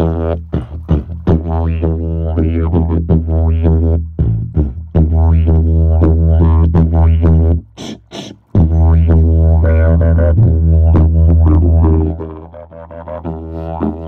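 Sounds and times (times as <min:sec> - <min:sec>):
tuba low drone: 0:00.0 - 0:14.0
short puffs: 0:00.4 - 0:01.3, 0:07.7 - 0:08.6.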